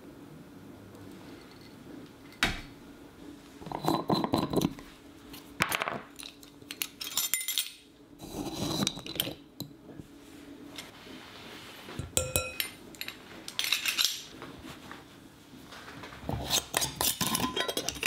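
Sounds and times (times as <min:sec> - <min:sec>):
glass clinking and rattling: 0:12.1 - 0:14.2.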